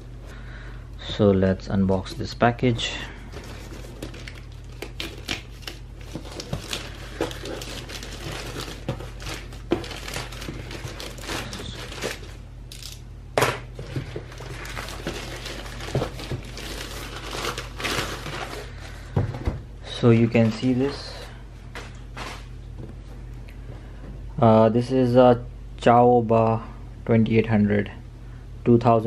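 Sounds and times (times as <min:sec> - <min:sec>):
plastic mailer crinkling and tearing: 0:03.2 - 0:18.8.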